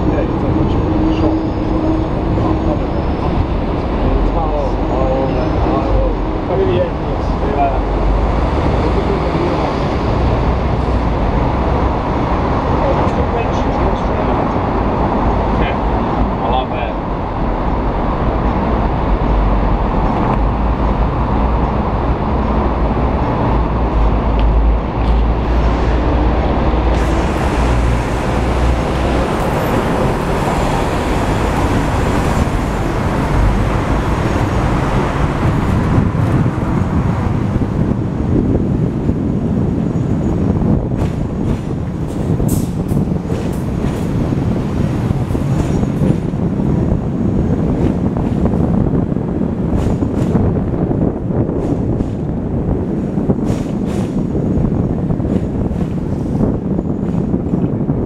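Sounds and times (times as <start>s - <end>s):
tram wheels rumbling on rails: 0.0s - 58.0s.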